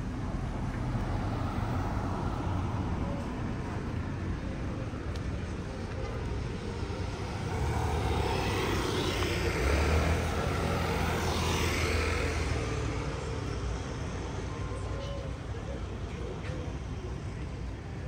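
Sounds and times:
vehicle engine passing by: 7.1s - 13.5s.

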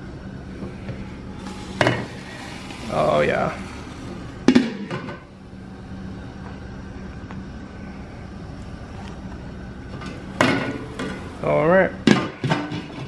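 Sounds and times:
stove hum and hiss: 0.0s - 13.0s.

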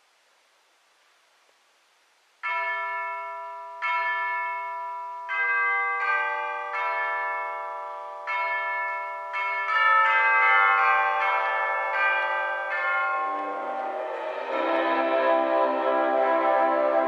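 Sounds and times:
tubular bells striking slow notes: 7.6s - 17.0s.

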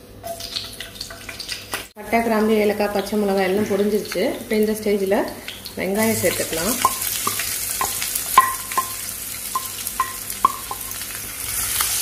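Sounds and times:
onions sizzling in pan: 0.2s - 12.0s
spoon clinking against pan: 6.8s - 9.0s, 9.6s - 11.0s.

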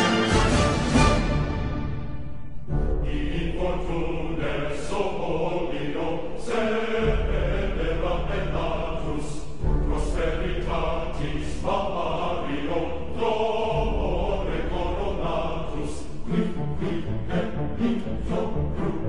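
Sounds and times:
choir chanting: 0.0s - 19.0s
deep pulsing bass: 2.7s - 4.7s, 6.9s - 19.0s.

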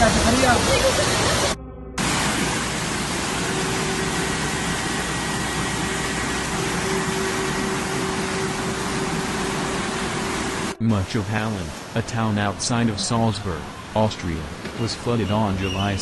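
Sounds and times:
floodwater rushing: 0.0s - 16.0s.

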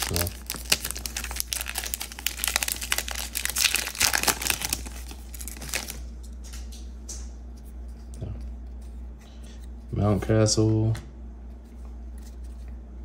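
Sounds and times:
plastic wrapper crinkling and tearing: 0.0s - 6.1s.

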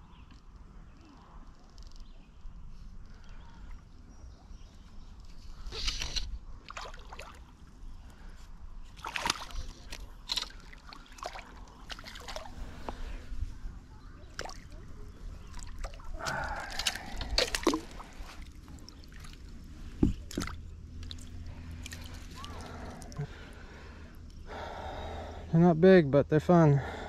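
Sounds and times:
fish splashing in water: 15.4s - 19.4s.

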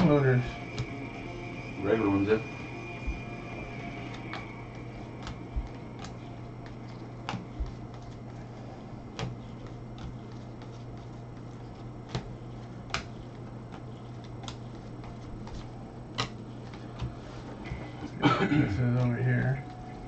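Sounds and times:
steady low hum: 0.0s - 20.0s
cards flipping clicks: 9.1s - 17.2s.

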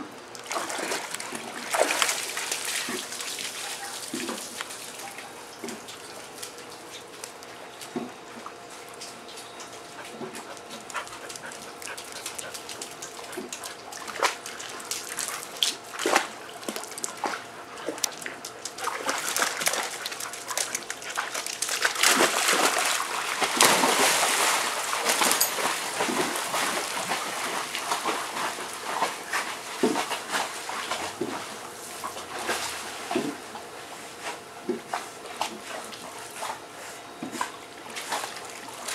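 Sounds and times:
water splashing: 0.4s - 5.1s, 13.2s - 29.2s.

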